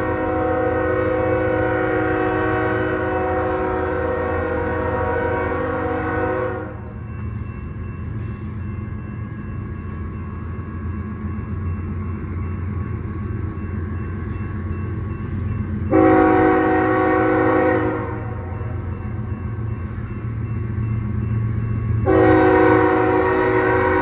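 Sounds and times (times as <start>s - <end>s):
locomotive air horn blasts: 0.0s - 6.9s, 15.9s - 18.6s, 22.0s - 24.0s
locomotive low rumble: 0.0s - 24.0s.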